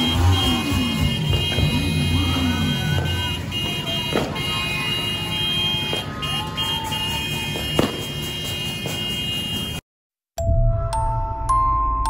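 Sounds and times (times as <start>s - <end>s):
continuous din: 0.0s - 9.8s
fireworks bangs: 0.8s - 9.8s.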